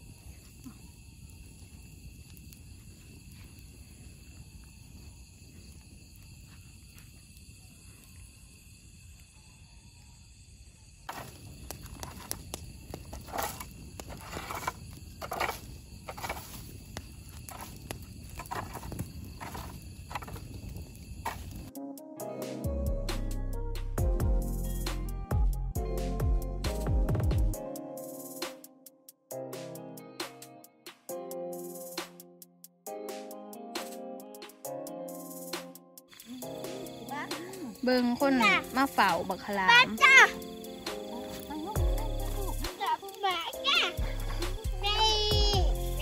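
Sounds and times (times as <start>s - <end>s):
night insects trilling: 0.0s - 22.9s, 31.1s - 32.3s, 32.9s - 46.0s
wood fire crackling and snapping: 0.2s - 6.4s, 11.1s - 21.7s, 36.4s - 46.0s.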